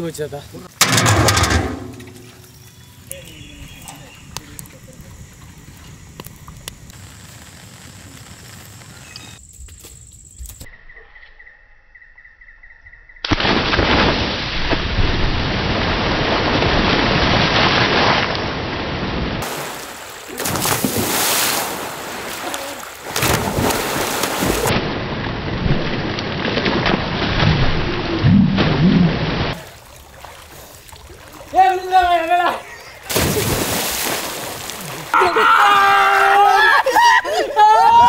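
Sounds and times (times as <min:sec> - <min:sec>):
people splashing in water: 0:19.4 - 0:24.8, 0:25.9 - 0:37.6.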